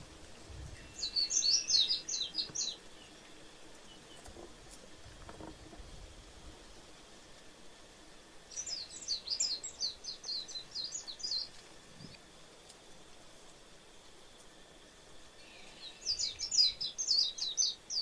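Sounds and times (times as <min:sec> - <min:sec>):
bird twittering song: 0:00.8 - 0:03.2, 0:08.5 - 0:12.2, 0:15.4 - 0:18.0.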